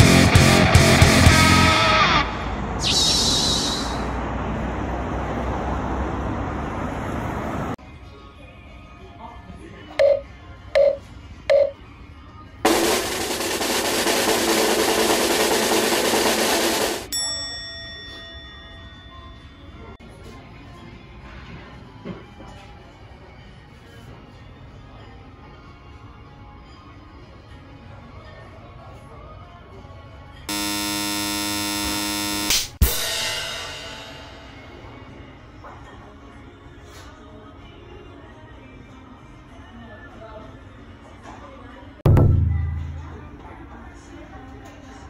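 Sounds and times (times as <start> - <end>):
faint background music: 7.8 - 14.0, 14.6 - 30.5, 33.4 - 45.0
loud buzzer: 12.7 - 17.1, 30.5 - 33.3
loud noise hiss: 12.7 - 17.1
sharp crash with ringing tail: 12.7 - 17.1, 32.8 - 35.1, 42.1 - 43.4
bell-like ding: 17.1 - 19.6.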